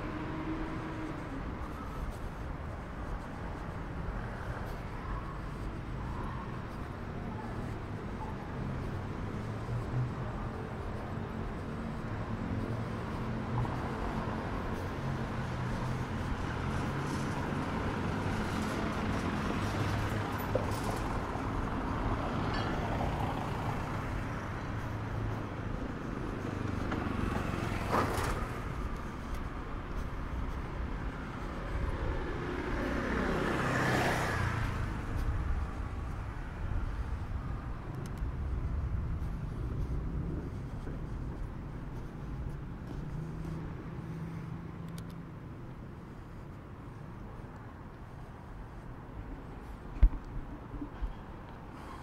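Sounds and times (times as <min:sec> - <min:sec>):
vehicles passing close by: 0:00.0 - 0:52.0.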